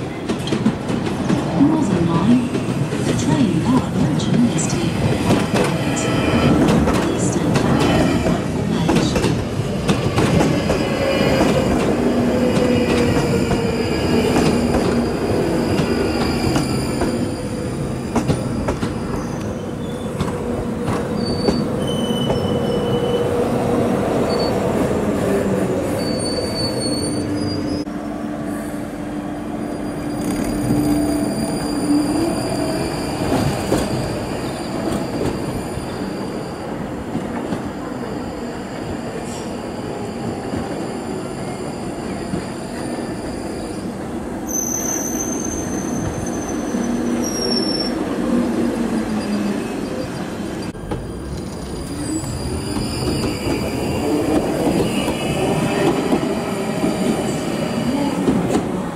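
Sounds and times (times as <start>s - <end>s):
train wheels rumbling on rail: 0.0s - 29.1s, 29.8s - 58.9s
high-pitched wheel squeals: 21.2s - 23.3s, 26.0s - 27.9s, 29.6s - 33.4s.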